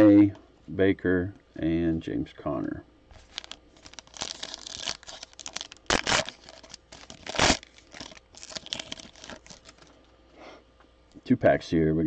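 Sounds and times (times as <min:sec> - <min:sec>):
wrapper tearing rips: 0:03.1 - 0:09.9
wrapper crinkling: 0:03.1 - 0:10.0.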